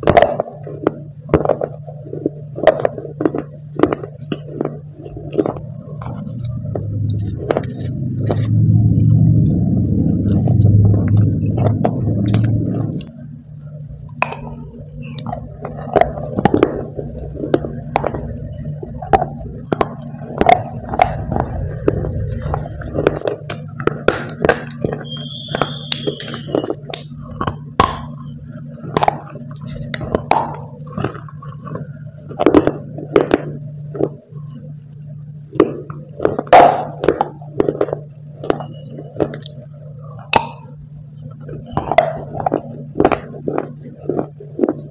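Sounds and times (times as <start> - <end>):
crunchy chewing: 0.0 - 44.9
loud low rumbling: 5.2 - 24.8.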